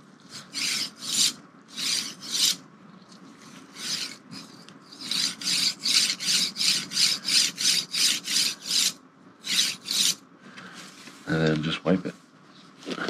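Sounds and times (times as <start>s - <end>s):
bearing carriage rasping on rail: 3.7s - 10.2s.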